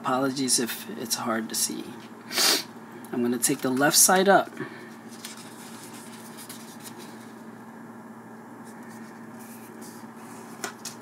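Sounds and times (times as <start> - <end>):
steady low hum: 0.0 - 11.0
paper rustling while folded: 5.0 - 7.4.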